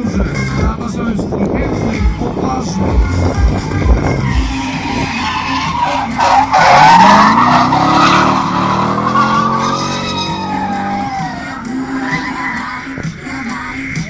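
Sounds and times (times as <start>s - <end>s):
car engine at high revs: 1.8s - 13.2s
tyres squealing: 4.0s - 12.8s.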